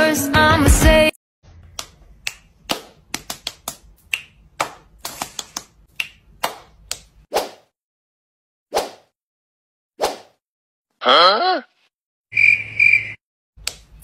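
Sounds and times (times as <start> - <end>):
finger snaps: 1.7 - 7.1.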